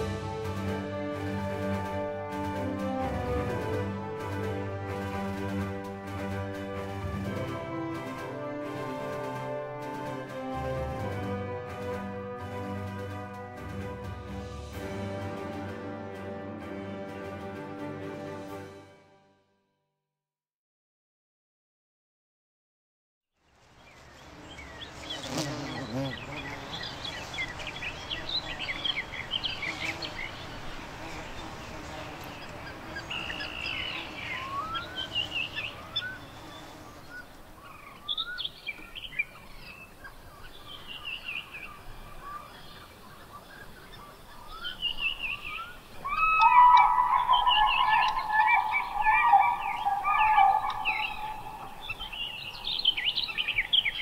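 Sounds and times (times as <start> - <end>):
birds chirping and whistling: 24.5 - 30.8, 31.4 - 43.0, 43.7 - 54.0
low multi-tone bird call: 32.4 - 54.0.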